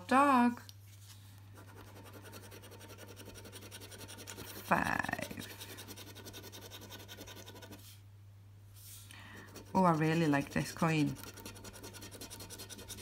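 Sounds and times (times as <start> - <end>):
coin scratching scratch card: 1.6 - 7.8, 9.4 - 13.0.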